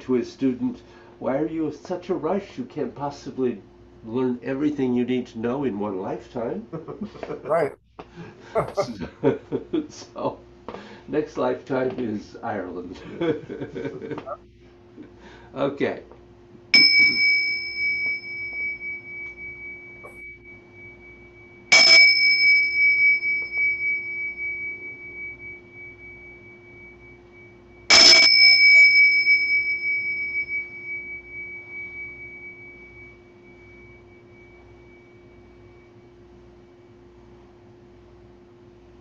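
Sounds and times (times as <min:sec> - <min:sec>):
hand cymbals ringing: 0:16.7 - 0:37.5.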